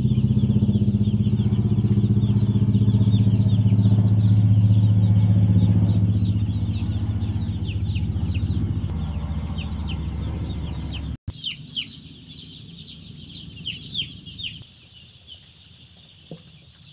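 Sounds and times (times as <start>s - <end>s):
low motor hum: 0.0s - 11.2s
chicks peeping: 0.0s - 16.9s.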